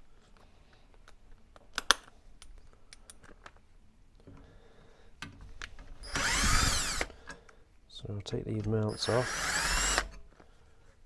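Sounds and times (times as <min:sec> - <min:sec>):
cordless drill whirring: 0:06.0 - 0:07.2, 0:08.9 - 0:10.2.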